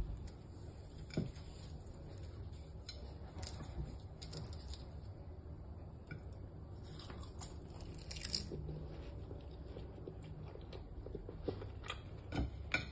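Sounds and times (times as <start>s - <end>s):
pastry crackling: 6.0s - 12.9s.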